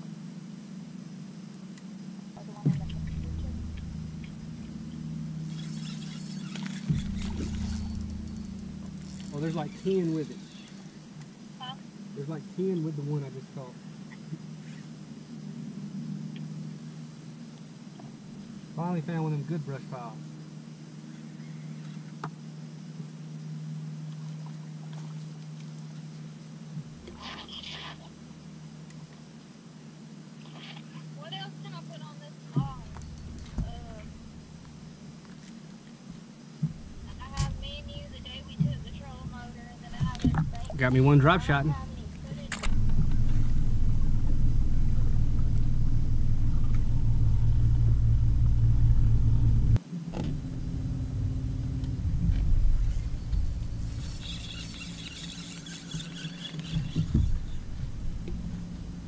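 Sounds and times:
deeper hum: 0:02.1 - 0:20.5, 0:22.9 - 0:28.8, 0:31.0 - 0:59.0
electric motor humming: 0:02.6 - 0:11.2, 0:32.6 - 0:35.4, 0:36.6 - 0:59.0
rustling: 0:51.8 - 0:59.0.

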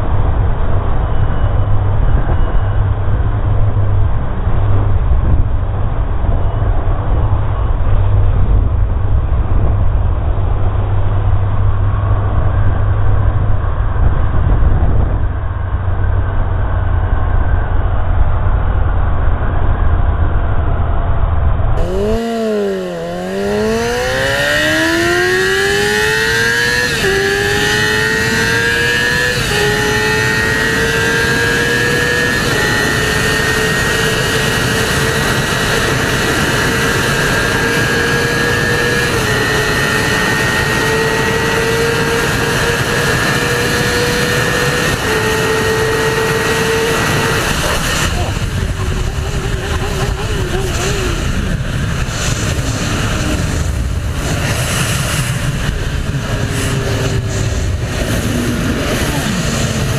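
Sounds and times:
motorcycle engine revving: 0:21.7 - 0:59.9.

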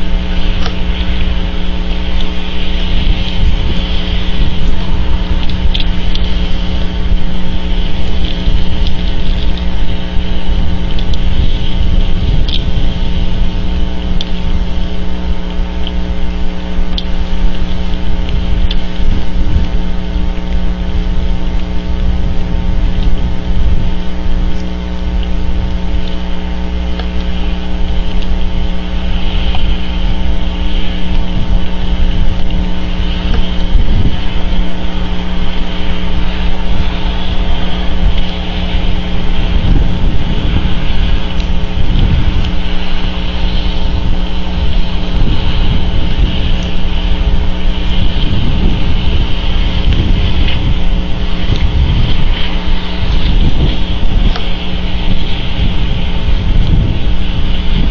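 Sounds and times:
steady hum: 0:00.0 - 0:57.9
wind and rain: 0:00.0 - 0:57.9
light ticks: 0:05.4 - 0:06.3, 0:10.9 - 0:11.2, 0:12.4 - 0:12.7, 0:16.9 - 0:20.6.

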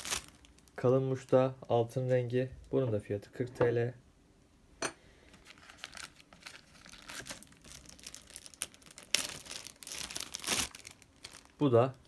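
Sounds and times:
plastic bag crinkling: 0:00.0 - 0:01.3, 0:05.4 - 0:12.0.

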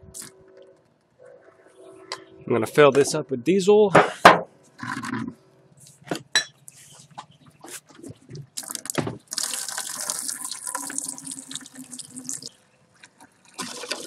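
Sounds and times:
fuel pouring into plastic bucket: 0:08.6 - 0:14.0.

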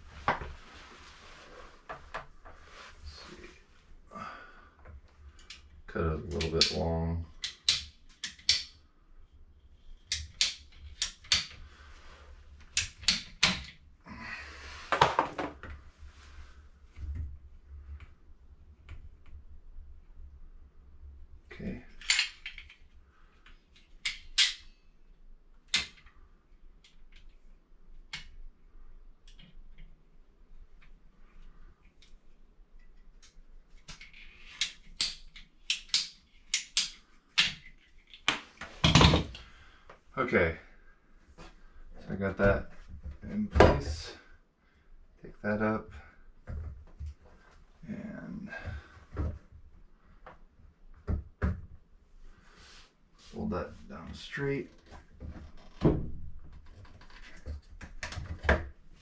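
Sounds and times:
hand tool clicking and snapping: 0:06.3 - 0:06.8, 0:07.4 - 0:08.8, 0:10.0 - 0:11.6, 0:12.8 - 0:13.7, 0:22.0 - 0:22.8, 0:23.8 - 0:24.7, 0:33.2 - 0:38.4.

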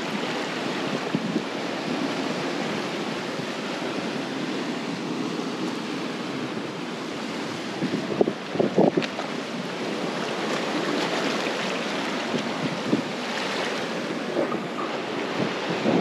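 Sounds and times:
ocean surf washing on rocks: 0:00.0 - 0:16.0
wind on microphone: 0:00.0 - 0:16.0.

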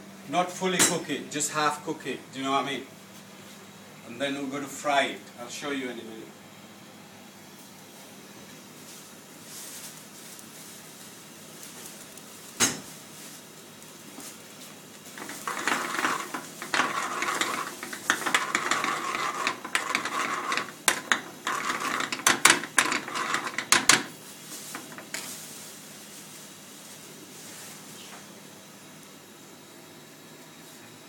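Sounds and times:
metal spoon scraping frying pan: 0:15.2 - 0:25.3.

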